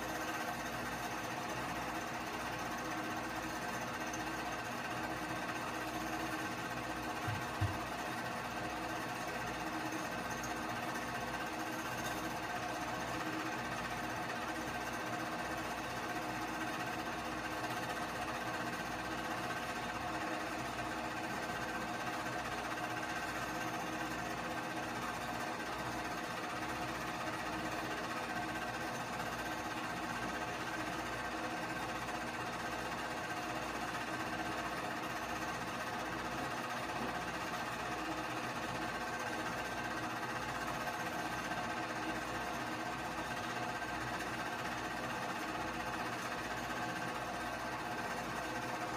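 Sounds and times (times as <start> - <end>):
movie projector whirring and clattering: 0.0 - 48.9.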